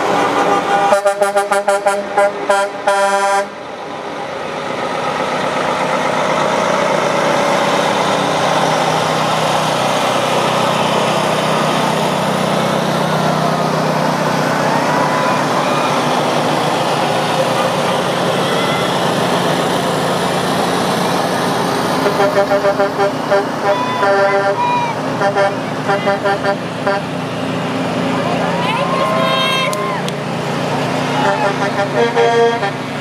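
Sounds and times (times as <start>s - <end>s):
heavy truck engines rumbling: 0.0s - 33.0s
truck horn blasts: 0.3s - 3.6s, 22.0s - 27.2s, 31.2s - 33.0s.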